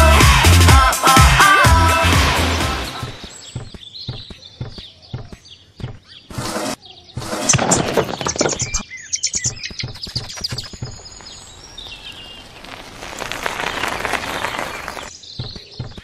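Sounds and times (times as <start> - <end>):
birds chirping: 2.9 - 16.0.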